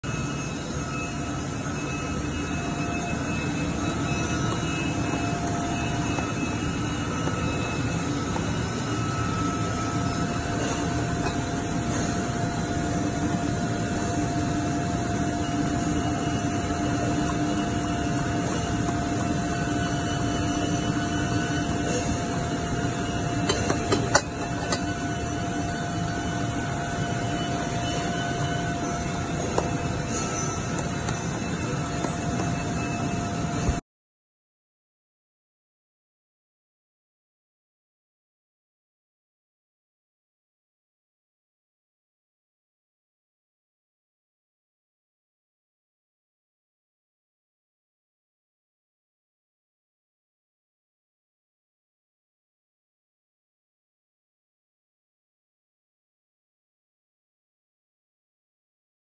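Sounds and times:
workshop machinery humming: 0.0 - 33.8.

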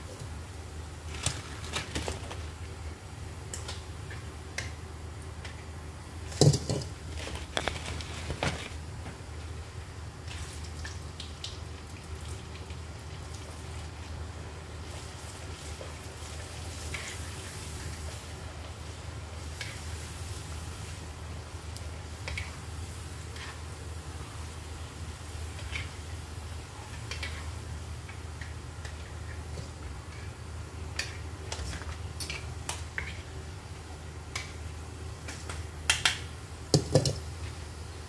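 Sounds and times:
oil bubbling and sizzling: 0.0 - 38.0.

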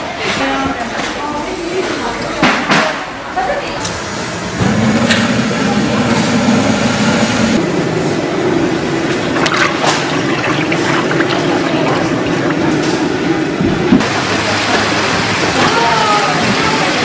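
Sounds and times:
gas burner flame: 3.8 - 14.5.

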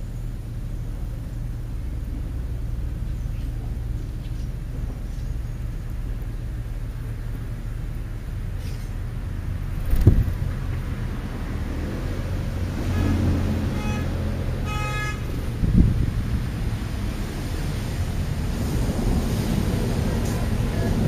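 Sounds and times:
wind on microphone: 9.7 - 11.0, 15.1 - 21.0.

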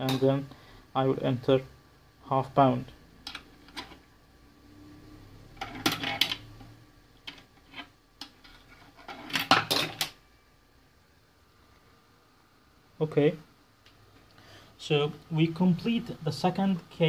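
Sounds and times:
coin clinking through coin acceptor: 5.6 - 6.5.

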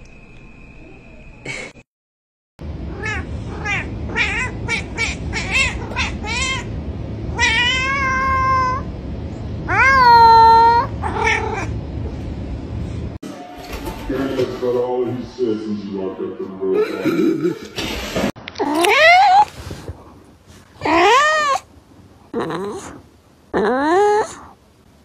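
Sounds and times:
cat meowing: 2.9 - 6.7, 7.3 - 8.9, 9.7 - 11.7, 18.6 - 19.5, 20.8 - 21.7, 23.6 - 24.5.

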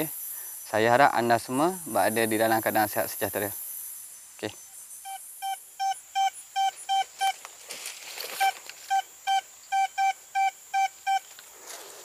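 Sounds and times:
metal detector beeping: 4.5 - 7.4, 8.3 - 11.4.

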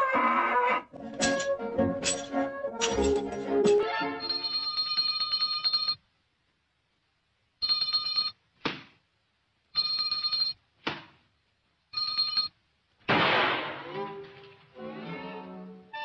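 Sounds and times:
background music: 0.0 - 4.6, 13.6 - 16.0.

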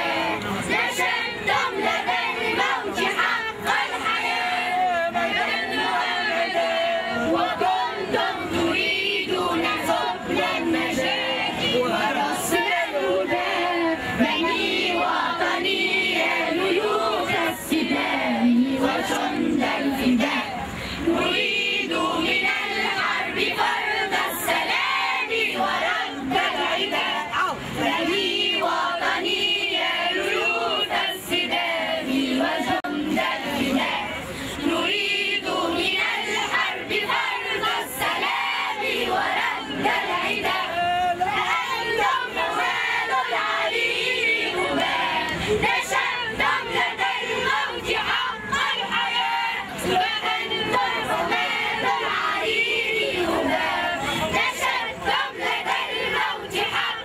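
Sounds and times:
children's choir singing: 0.0 - 57.0.

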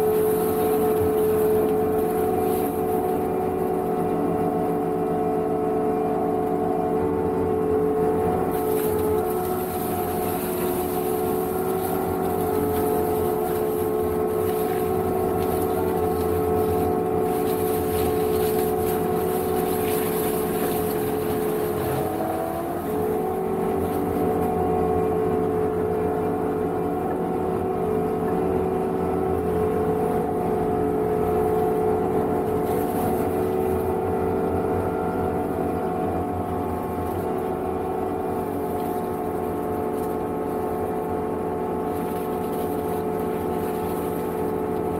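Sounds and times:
mower engine whining: 7.9 - 25.2.

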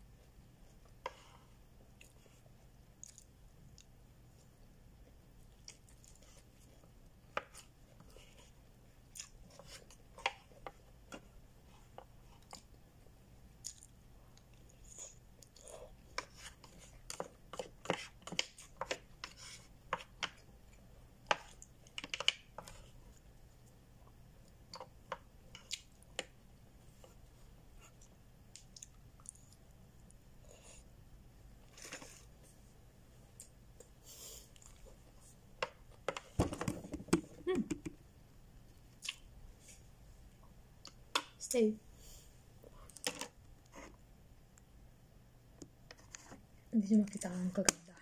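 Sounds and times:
person chewing: 2.0 - 3.9, 5.5 - 6.7, 9.0 - 10.6, 13.5 - 19.2, 27.8 - 30.9, 33.3 - 35.0, 38.8 - 39.3.

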